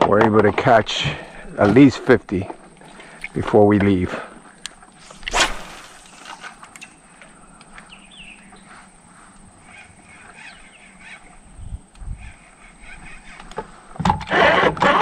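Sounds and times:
birds calling and chirping: 0.8s - 14.0s.

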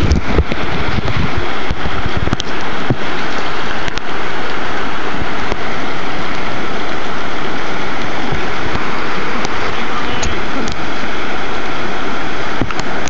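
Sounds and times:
whitewater rushing: 0.0s - 13.0s.

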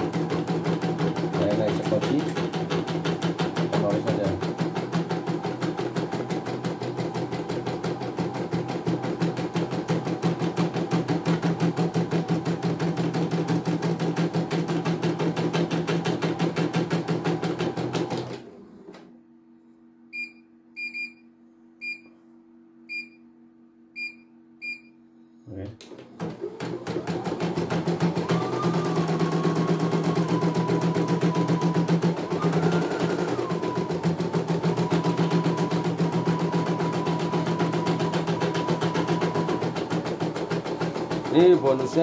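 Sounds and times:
embroidery machine stitching: 0.0s - 19.0s, 25.9s - 42.0s.

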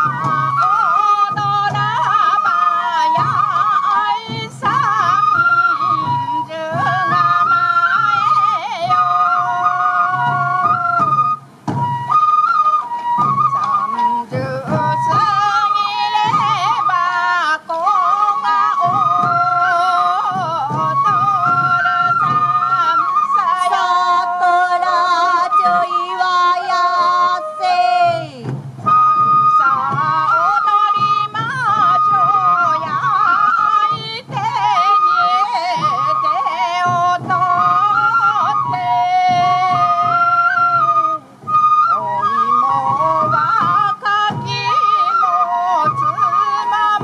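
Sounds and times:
bamboo flute melody: 0.0s - 47.0s
drums beating: 0.0s - 47.0s.

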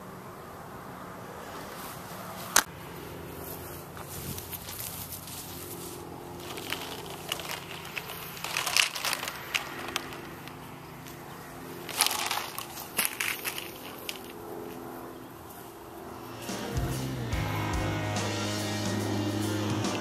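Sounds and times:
steady low hum: 2.6s - 20.0s
plastic tubing crinkling: 4.2s - 14.5s.

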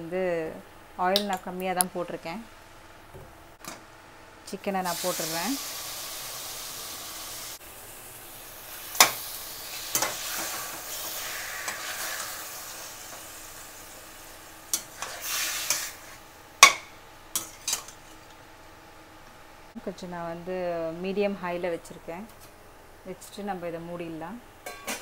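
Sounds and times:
chicken sizzling in a pan: 4.8s - 16.8s.

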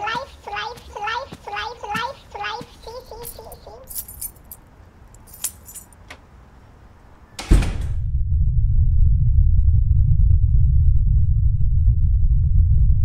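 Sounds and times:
metallic jingling rattles: 1.8s - 6.1s
deep rumbling drone: 7.9s - 13.0s.

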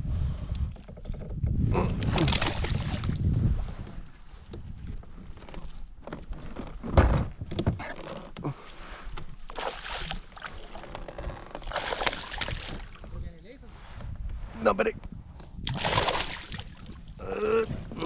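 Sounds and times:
fish splashing at water surface: 11.6s - 13.0s, 15.7s - 16.8s.

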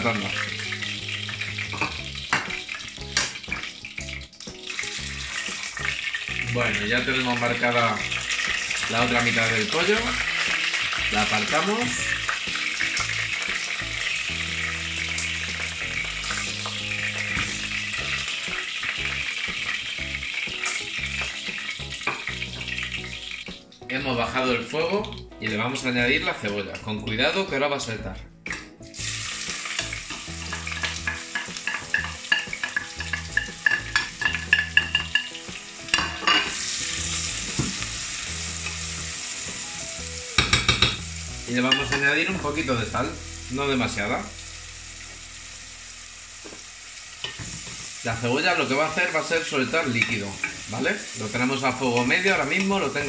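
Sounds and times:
hot oil sizzling: 0.0s - 27.3s, 28.5s - 53.0s
spoon knocking on pot: 40.4s - 41.0s.

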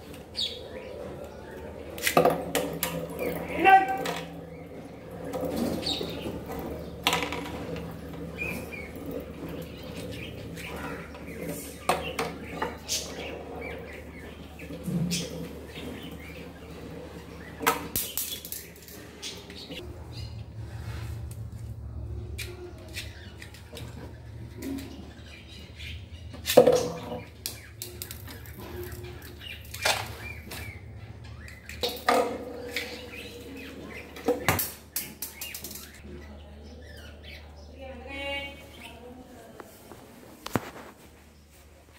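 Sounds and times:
knocks and clatters: 2.0s - 19.8s.

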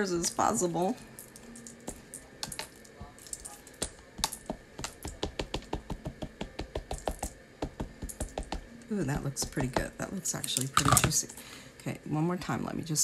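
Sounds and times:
ink pad tapping on stamp: 3.3s - 10.0s.

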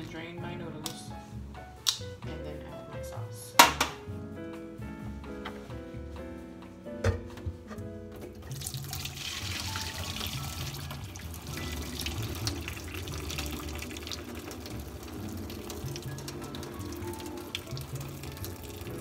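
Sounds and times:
background music: 0.0s - 19.0s
water pouring into metal sink: 8.4s - 19.0s.

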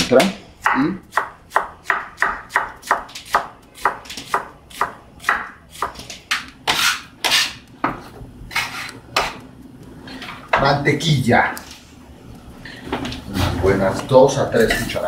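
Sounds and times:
knife chopping on wooden board: 0.6s - 8.0s
bench scraper scraping board: 5.8s - 7.6s, 8.5s - 9.3s.

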